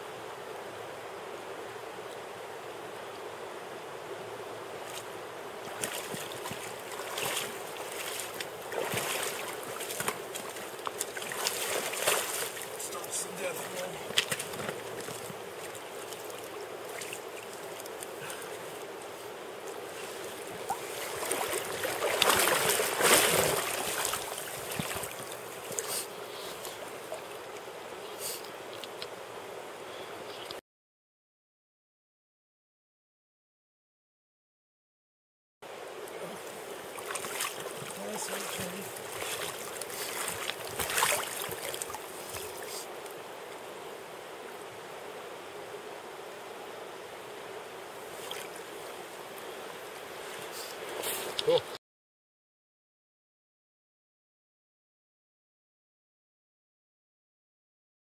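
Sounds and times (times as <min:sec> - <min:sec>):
river running over stones: 0:00.1 - 0:29.8, 0:35.7 - 0:51.5
water splashing and sloshing: 0:04.8 - 0:29.2, 0:36.0 - 0:45.7, 0:47.3 - 0:51.7
fish splashing in water: 0:05.7 - 0:13.2, 0:20.7 - 0:26.0, 0:36.9 - 0:42.8.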